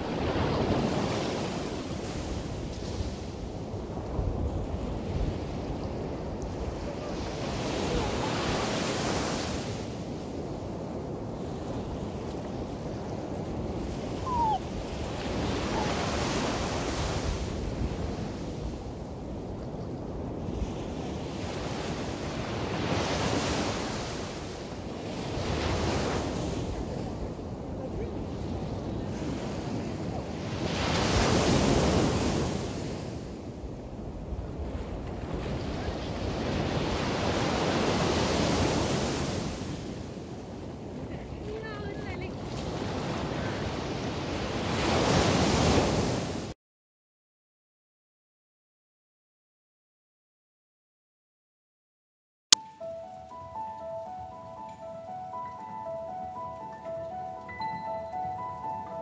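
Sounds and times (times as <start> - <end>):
wind on microphone: 0.0 - 46.4
waves washing onto beach: 0.0 - 46.6
short high cry: 14.2 - 14.7.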